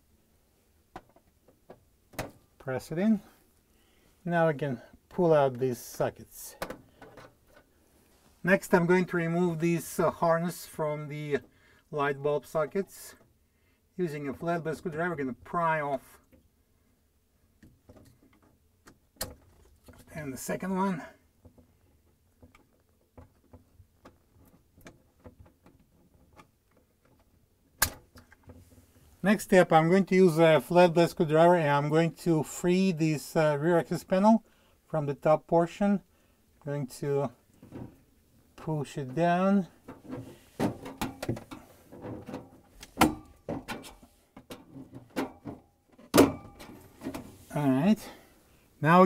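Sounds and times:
loud sharp plastic snap: 27.8s - 28.4s.

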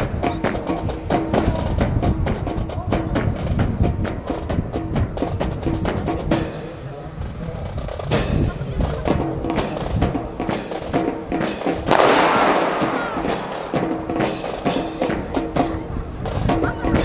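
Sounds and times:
music with steady drum beat: 0.0s - 17.0s
rifle drill clacks: 11.8s - 14.6s
loud bang with echo: 11.9s - 15.4s.

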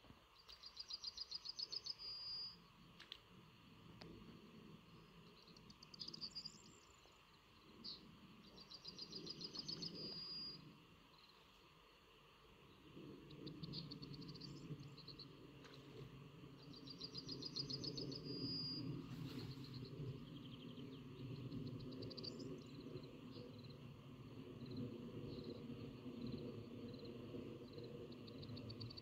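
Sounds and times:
birds singing high trills: 0.4s - 2.6s, 7.8s - 10.6s, 16.6s - 22.8s.

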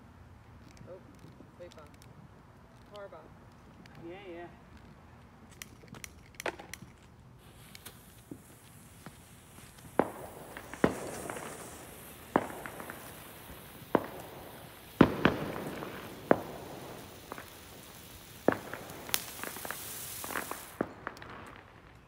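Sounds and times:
firework pops and bangs: 4.8s - 22.0s
firework sparks hissing: 5.5s - 22.0s.

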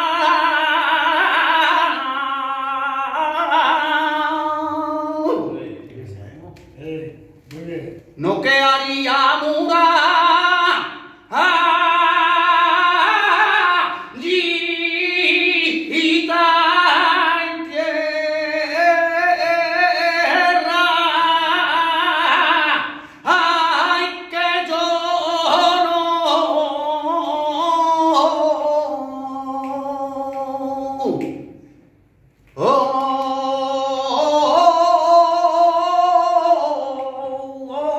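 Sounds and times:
man singing unaccompanied: 0.0s - 5.9s, 6.8s - 31.7s, 32.6s - 37.9s
singer breathing: 22.9s - 23.3s.

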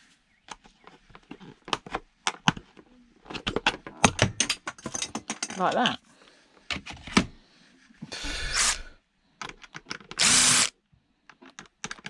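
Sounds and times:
handling clicks and knocks: 0.4s - 5.9s, 9.4s - 10.2s, 11.3s - 12.0s
electric drill-driver running: 8.2s - 8.9s, 10.2s - 10.7s.

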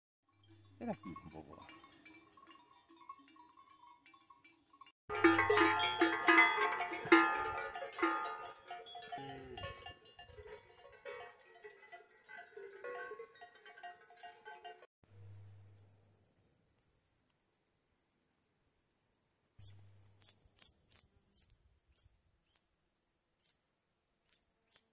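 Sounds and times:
cattle bells clanging: 0.3s - 15.3s.

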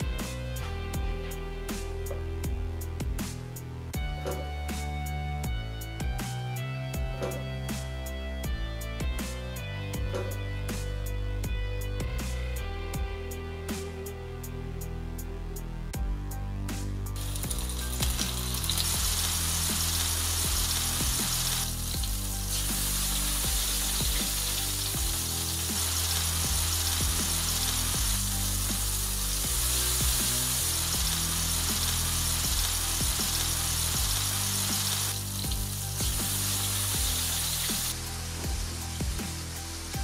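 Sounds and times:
background music with bass line: 0.0s - 40.0s
food sizzling in a frying pan: 17.2s - 40.0s.

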